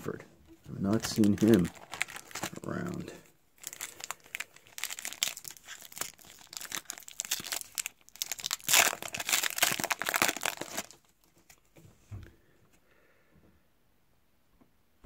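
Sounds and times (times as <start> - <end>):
card pack wrapper crinkling: 0.7 - 11.6.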